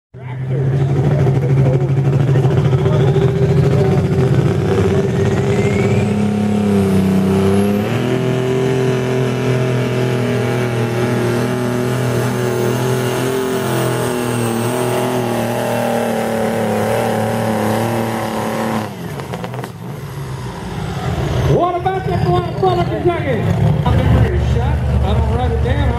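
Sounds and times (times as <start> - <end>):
tractor engine running loud: 0.2 - 25.9
turbo whistle: 5.0 - 6.3.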